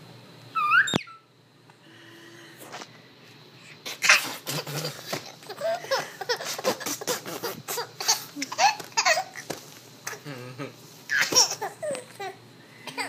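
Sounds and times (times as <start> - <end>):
baby laughing: 3.9 - 9.5, 11.1 - 13.0
baby squealing giggles: 11.1 - 12.0.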